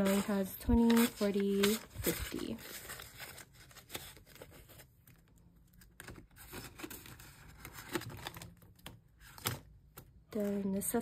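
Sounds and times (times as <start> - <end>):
paper banknotes rustling: 0.0 - 4.9.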